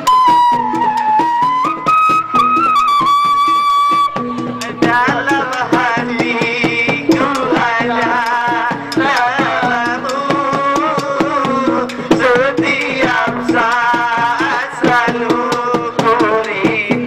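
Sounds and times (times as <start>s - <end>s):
man singing with vibrato: 4.2s - 17.0s.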